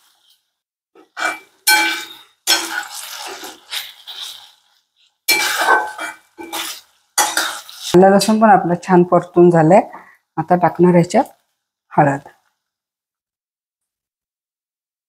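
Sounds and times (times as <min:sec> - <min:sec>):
metal spatula scraping metal pan: 0:01.0 - 0:08.4.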